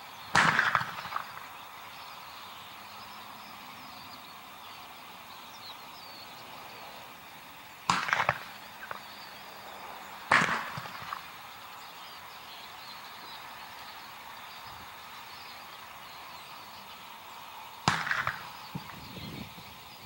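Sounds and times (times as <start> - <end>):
bird-scare cannon bangs with echo: 0.3 - 1.5, 7.9 - 9.2, 10.3 - 11.3, 17.8 - 19.0.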